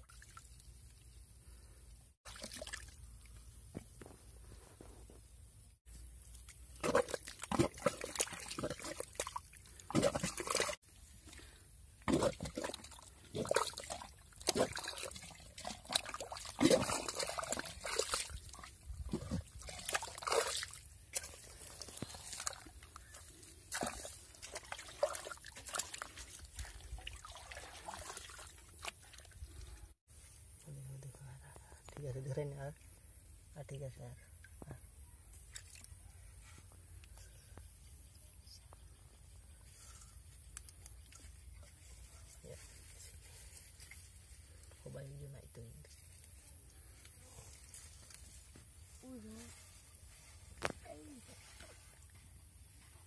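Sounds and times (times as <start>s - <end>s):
hand squelching in muddy water: 2.2s - 3.4s, 6.2s - 29.8s.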